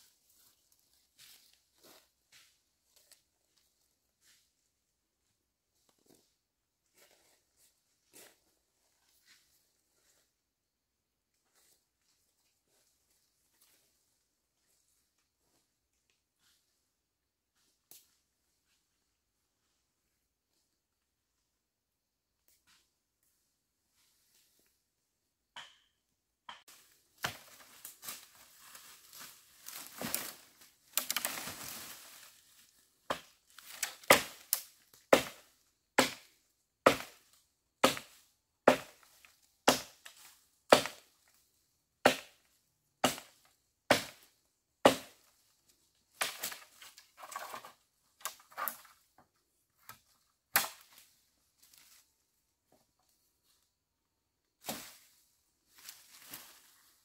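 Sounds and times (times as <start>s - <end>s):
rustling through dry leaves: 26.7s - 32.9s, 55.7s - 57.0s
dry wood cracking: 29.7s - 32.0s.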